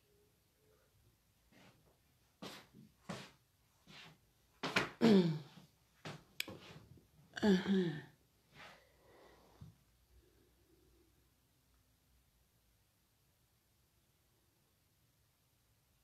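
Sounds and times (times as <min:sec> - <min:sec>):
woman making vocal sounds: 0:07.4 - 0:08.1.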